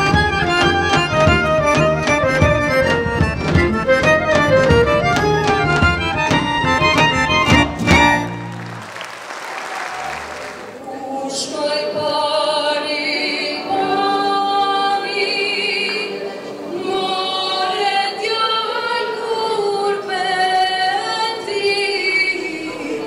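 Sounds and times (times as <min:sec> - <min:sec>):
women singing together: 0:10.8 - 0:23.0.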